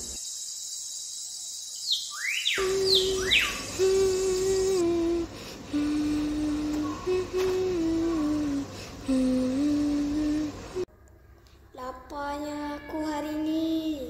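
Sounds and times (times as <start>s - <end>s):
person humming: 2.6s - 10.9s.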